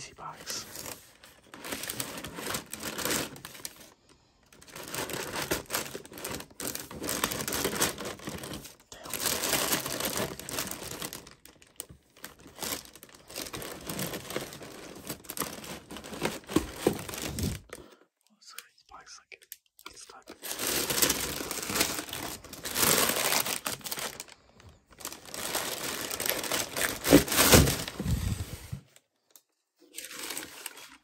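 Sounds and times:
tissue paper rustling: 0.3s - 17.7s, 20.4s - 28.8s, 29.9s - 31.0s.

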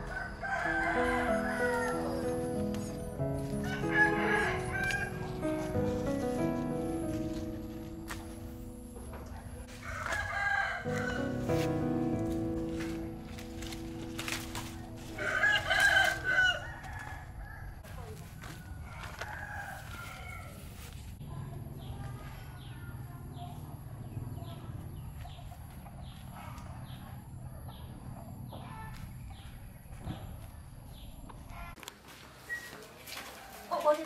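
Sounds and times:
rooster crowing: 0.0s - 2.6s, 3.4s - 5.4s, 9.7s - 11.4s, 15.0s - 20.8s.

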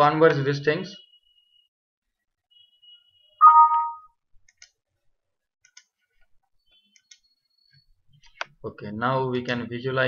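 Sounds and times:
computer alert chime: 3.4s - 4.1s
computer mouse clicks: 4.4s - 4.8s, 5.6s - 6.3s, 6.9s - 8.6s.

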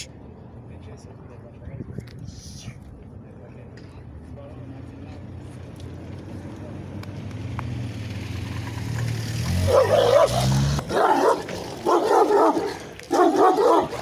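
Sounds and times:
dog barking: 9.7s - 14.0s.

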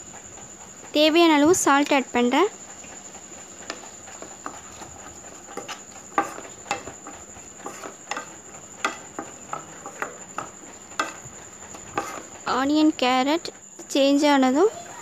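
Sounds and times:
spatula scraping pan: 3.5s - 15.0s.

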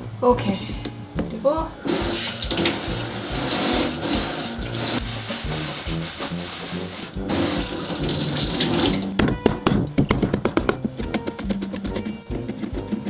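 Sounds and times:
background music: 0.0s - 13.0s
tap running into sink: 1.9s - 5.7s, 7.2s - 10.7s
knife chopping on cutting board: 9.2s - 13.0s.

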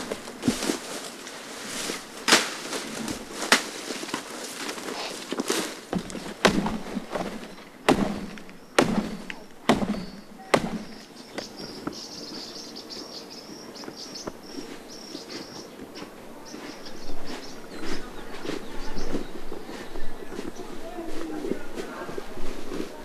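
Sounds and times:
machete chopping brush: 0.0s - 11.0s.

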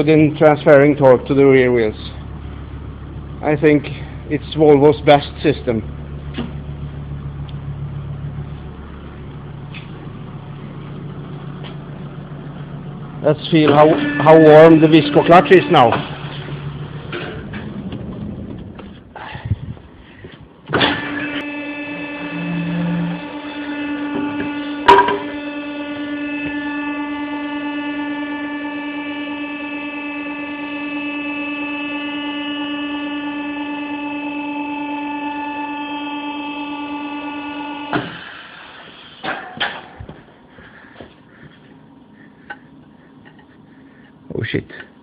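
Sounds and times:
electrical hum: 0.0s - 45.0s
sharp knocks: 24.4s - 25.3s.

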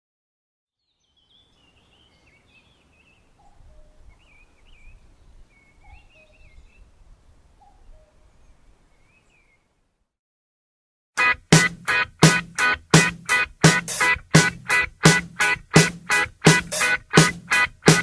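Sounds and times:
bird warbling song: 0.8s - 7.0s, 7.6s - 9.7s.

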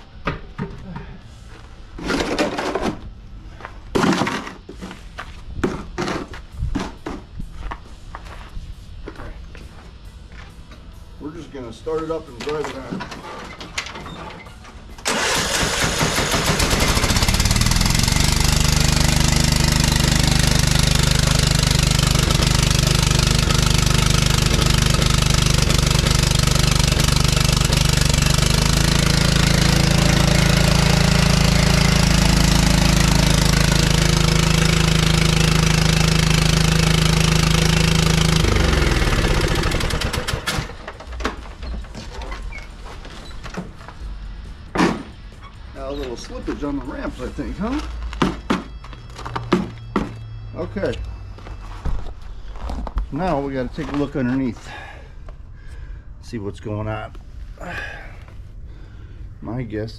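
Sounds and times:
lawn tractor engine running: 15.0s - 42.0s.

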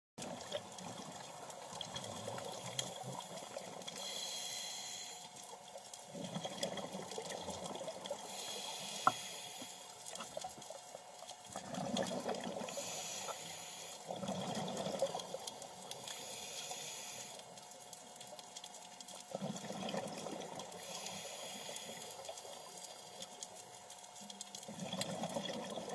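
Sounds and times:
scuba regulator inhale hiss: 2.8s - 5.4s, 8.2s - 10.0s, 12.7s - 14.2s, 16.0s - 17.5s, 20.8s - 22.7s
exhaled bubbles bubbling: 5.6s - 8.4s, 11.4s - 13.2s, 14.0s - 15.6s, 19.2s - 21.1s, 24.7s - 25.9s.

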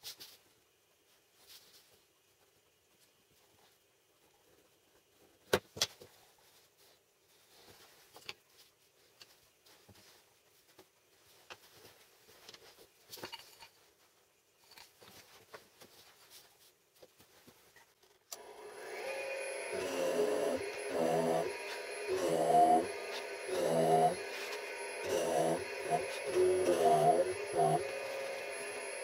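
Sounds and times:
drill press motor running: 18.4s - 29.0s.

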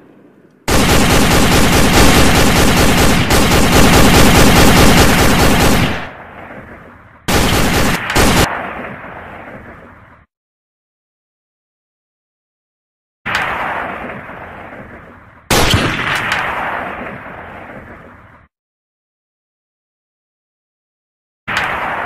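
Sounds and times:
machine-gun bursts: 0.7s - 6.1s, 7.3s - 8.5s.

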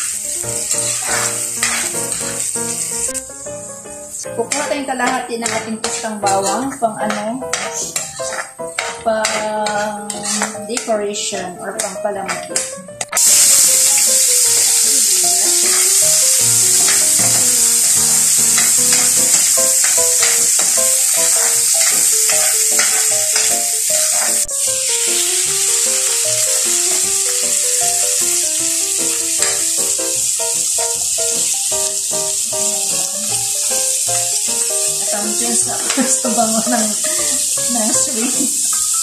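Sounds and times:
metal ladle scraping a pan: 0.0s - 3.1s, 4.4s - 26.2s, 29.4s - 29.7s
onion sizzling in hot oil: 0.0s - 39.0s.

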